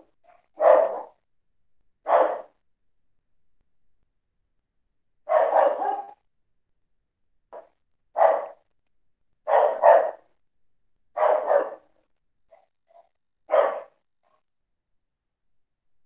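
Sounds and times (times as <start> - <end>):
dog barking: 0.2 - 1.2, 2.0 - 2.6, 5.2 - 6.2, 7.5 - 8.7, 9.4 - 10.3, 11.2 - 11.9, 12.5 - 14.0
dog yipping: 0.6 - 1.1, 5.3 - 6.2, 9.5 - 10.2.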